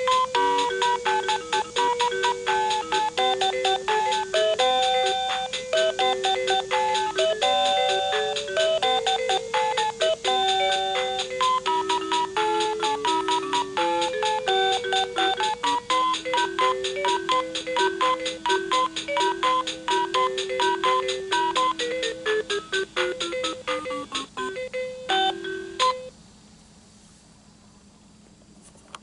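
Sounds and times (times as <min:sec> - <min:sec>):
steady clicking beat: 0:00.0 - 0:26.0
toy playing electronic tune: 0:00.0 - 0:26.1.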